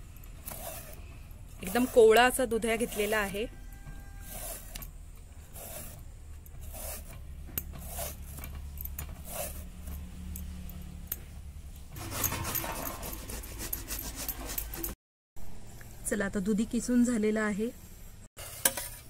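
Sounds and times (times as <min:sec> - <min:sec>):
peeler scraping gourd skin: 0:00.3 - 0:09.8, 0:12.0 - 0:15.0
gourd rasping on a grater: 0:00.4 - 0:04.8, 0:05.4 - 0:08.4, 0:12.0 - 0:15.0.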